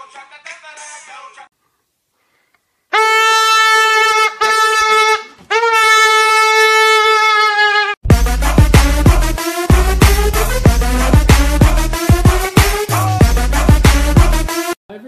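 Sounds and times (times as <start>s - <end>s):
wind instrument blasts: 2.9s - 13.1s
electronic music with heavy beat: 8.1s - 14.8s.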